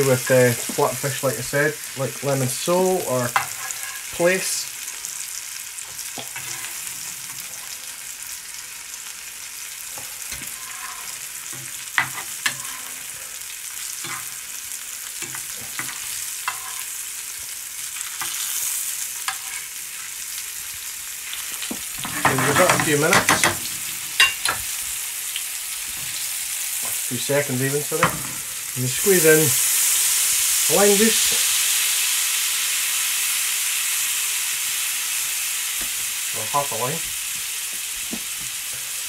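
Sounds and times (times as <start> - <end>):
fish sizzling in a frying pan: 0.0 - 39.0
metal knife scraping a pan: 3.4 - 4.1, 6.2 - 7.8, 10.0 - 13.1, 14.0 - 14.4, 15.2 - 16.9, 19.2 - 19.7, 22.0 - 24.6.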